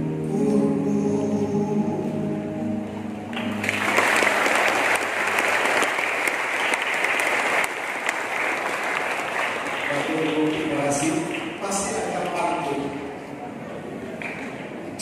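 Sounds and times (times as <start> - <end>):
congregation applauding: 3.3 - 13.2.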